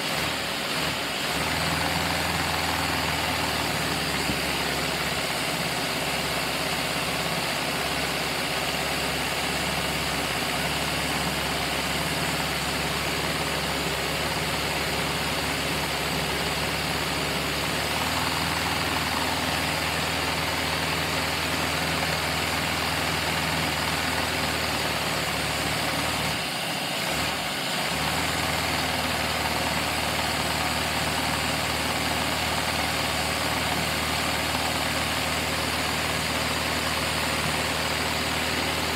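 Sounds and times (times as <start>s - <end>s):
vacuum engine air rush and hum: 0.0s - 24.5s.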